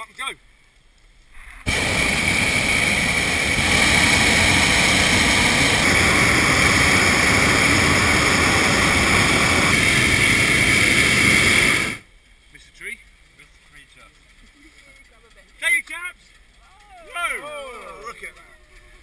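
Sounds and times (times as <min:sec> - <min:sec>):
propane burners blasting: 0:01.6 - 0:12.1.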